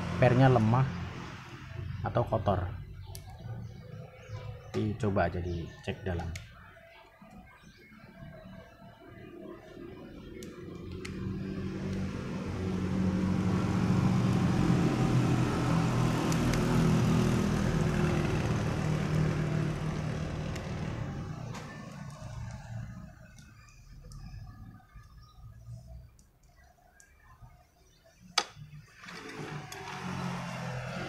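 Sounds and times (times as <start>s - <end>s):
vehicle engine passing: 0.0s - 4.1s, 10.6s - 23.4s, 29.1s - 31.0s.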